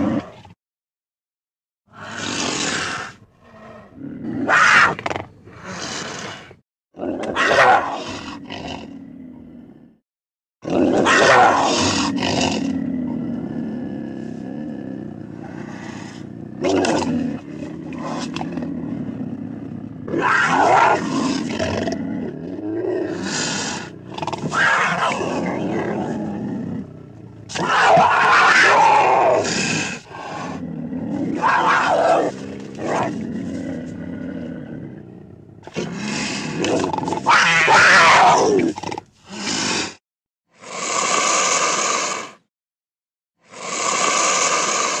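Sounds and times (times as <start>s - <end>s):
big cat calls: 20.0s - 33.8s, 36.6s - 38.8s.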